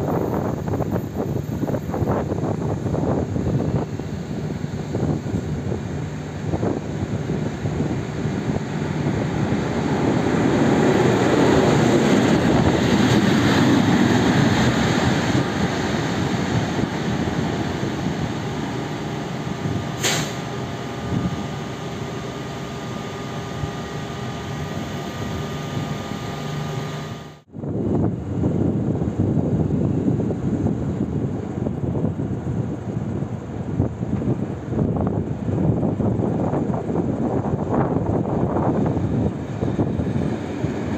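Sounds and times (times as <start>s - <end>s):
diesel locomotive engine: 0.0s - 40.9s
wheels rumbling on rails: 0.0s - 40.9s
short sharp hiss: 20.0s - 20.5s.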